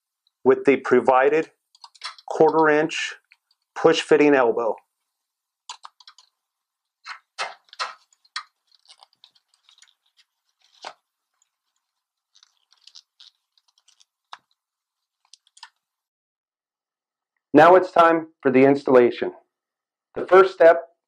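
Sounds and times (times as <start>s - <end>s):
tubing clicks and creaks: 1.7s - 3.8s, 5.7s - 15.9s.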